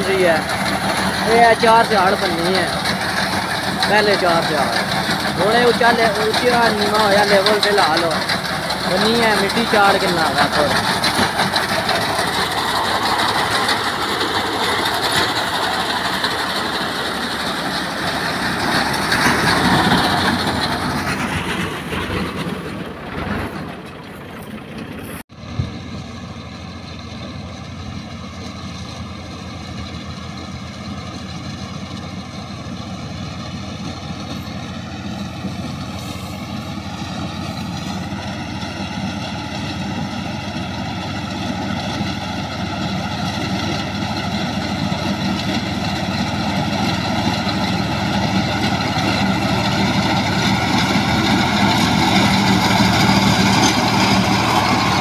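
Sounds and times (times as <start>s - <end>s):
reaper cutting wheat: 0.0s - 21.6s, 33.5s - 55.0s
tractor engine running: 0.0s - 55.0s.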